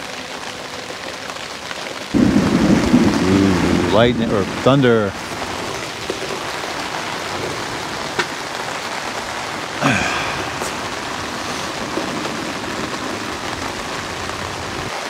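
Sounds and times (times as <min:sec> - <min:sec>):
rain on a canopy: 0:00.0 - 0:15.0.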